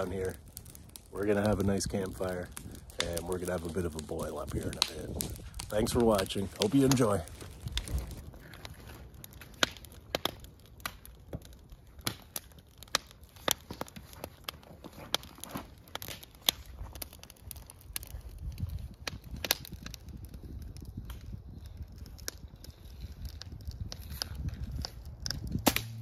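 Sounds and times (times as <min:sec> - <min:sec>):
campfire crackling: 0:00.0 - 0:26.0
fire pops and snaps: 0:00.0 - 0:26.0.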